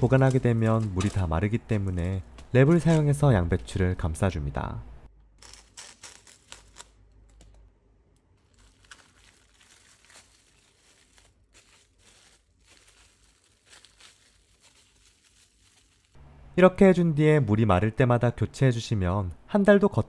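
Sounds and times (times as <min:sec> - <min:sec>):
plastic cling wrap crinkling: 0:05.3 - 0:07.6, 0:08.2 - 0:16.2.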